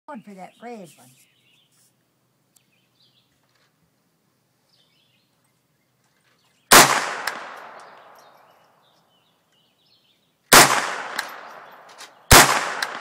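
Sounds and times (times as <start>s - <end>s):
gunshots with echoing tail: 6.7s - 8.4s, 10.5s - 13.0s.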